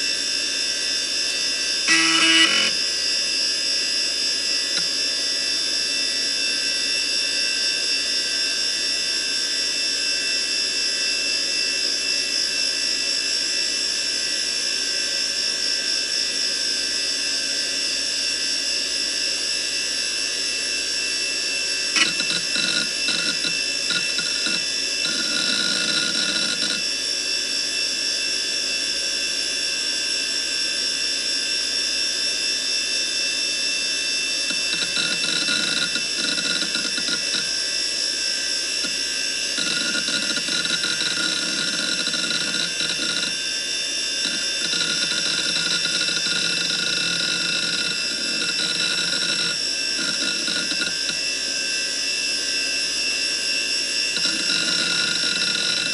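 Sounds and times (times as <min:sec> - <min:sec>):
hard drive spinning whine: 0:00.0 - 0:28.6, 0:32.6 - 0:55.9
hard drive heads chattering: 0:01.9 - 0:02.8, 0:22.0 - 0:26.8, 0:34.5 - 0:37.5, 0:39.6 - 0:43.4, 0:44.2 - 0:51.2, 0:54.2 - 0:55.9
sharp click: 0:01.9 - 0:02.8, 0:22.0 - 0:26.8.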